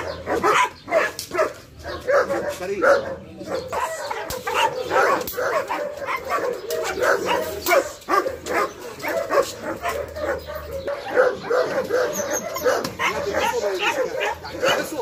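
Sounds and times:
dog barking: 0.0 - 15.0
dog whining: 9.8 - 14.8.

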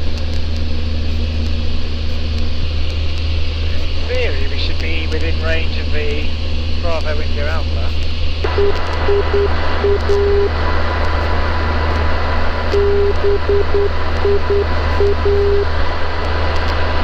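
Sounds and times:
aircraft engine drone: 0.0 - 17.0
radio hiss: 1.0 - 17.0
morse code tone: 8.5 - 10.5, 12.7 - 15.7.

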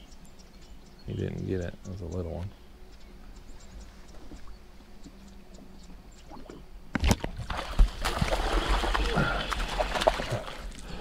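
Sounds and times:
water churning: 6.3 - 11.0
fish splash: 7.0 - 10.8.

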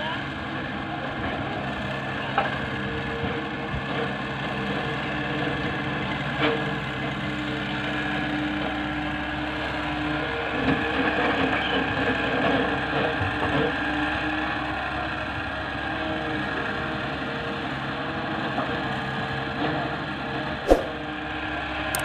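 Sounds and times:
tractors idling: 0.0 - 20.6
excavator diesel engine: 0.0 - 22.0.

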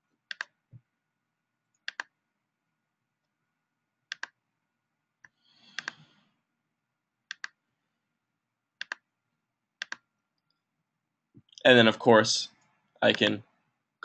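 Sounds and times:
computer mouse clicks: 0.3 - 0.6, 1.7 - 2.1, 4.1 - 4.4, 5.2 - 6.1, 7.3 - 7.6, 8.8 - 9.0, 9.8 - 10.5.

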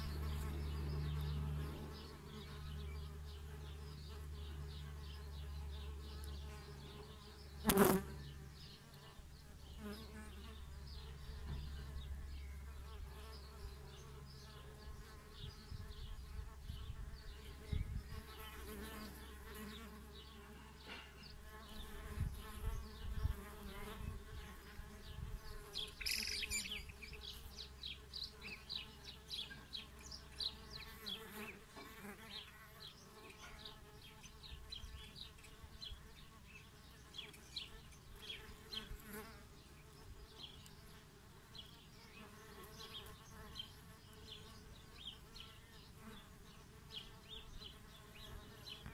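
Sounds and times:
bees buzzing: 0.0 - 12.1.

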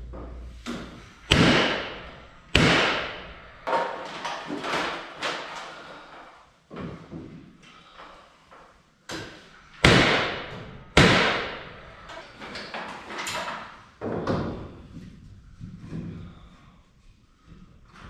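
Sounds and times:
hammer nailing wood: 0.7 - 4.8, 9.1 - 11.7.

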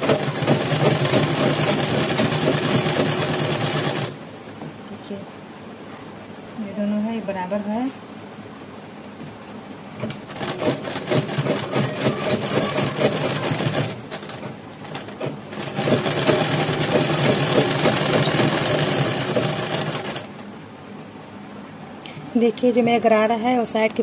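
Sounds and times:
sewing machine stitching: 0.0 - 4.2, 10.0 - 20.4.

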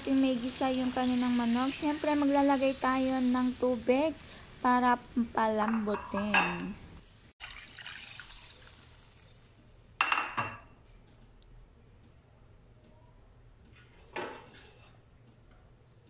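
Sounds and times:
water hissing in a wok: 0.0 - 5.4, 7.1 - 9.6.

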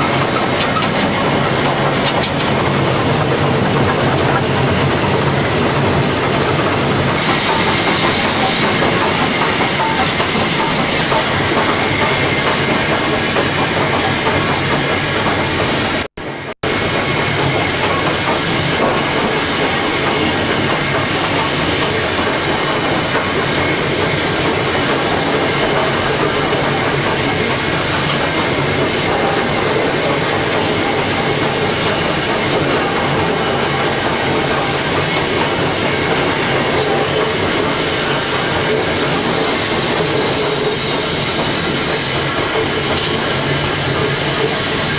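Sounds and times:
wheels clattering over rail joints: 0.0 - 4.7
steam hissing: 0.0 - 16.0, 16.7 - 44.9.

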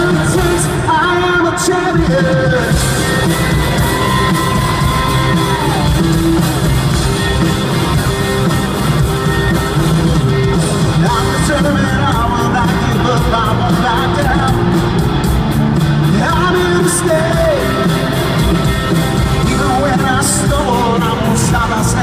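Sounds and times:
man singing: 0.0 - 6.1, 10.3 - 15.0, 16.0 - 22.0
live rock band playing: 0.0 - 22.0.

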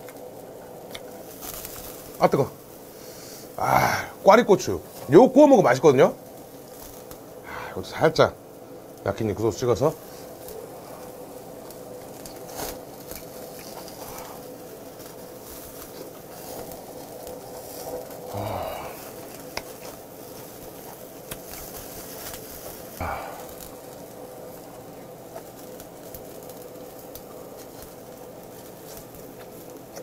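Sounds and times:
faint steady hum: 0.0 - 30.0
fat crackling on coals: 0.0 - 30.0
meat sizzling on grill: 0.0 - 30.0
person vocal sounds: 3.6 - 4.3, 18.2 - 19.2, 23.0 - 23.6.

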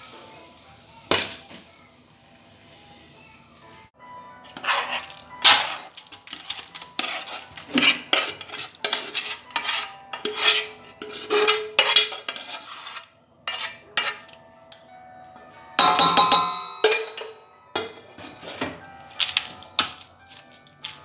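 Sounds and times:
utensil scraping a metal pot: 4.4 - 14.4, 15.8 - 21.0.

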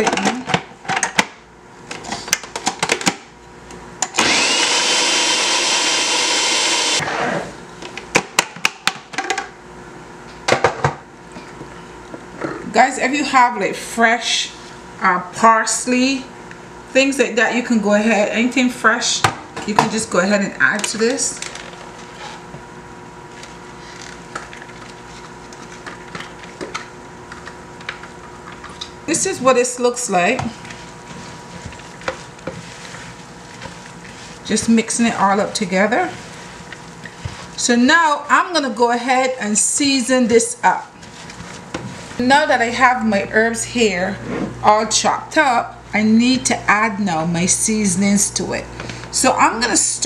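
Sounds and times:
food processor motor grinding: 4.0 - 7.6
steady hum: 9.4 - 50.0
spatula scraping plastic jar: 30.4 - 37.6.

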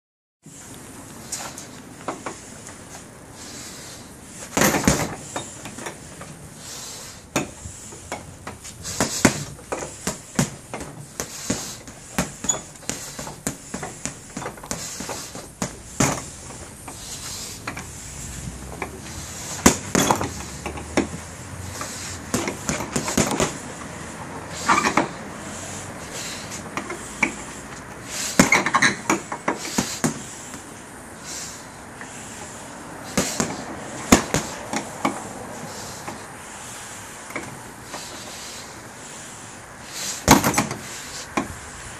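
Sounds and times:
gloves punching heavy bag: 4.5 - 5.2, 8.8 - 17.3, 18.9 - 20.4, 22.2 - 23.6, 33.1 - 34.6, 40.2 - 40.7.

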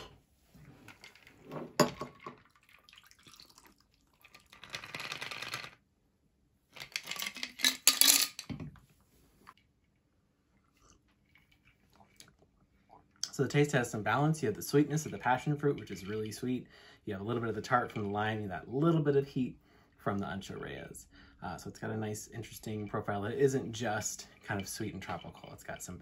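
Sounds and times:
cocktail pouring over ice: 22.4 - 26.0.

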